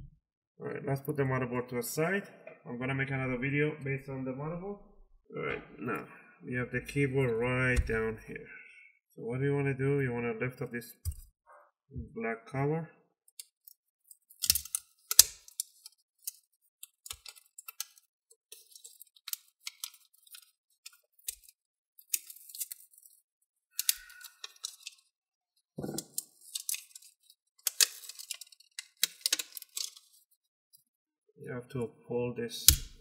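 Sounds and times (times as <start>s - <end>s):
plastic film peeling and crackling: 13.4s - 25.1s, 25.8s - 30.4s.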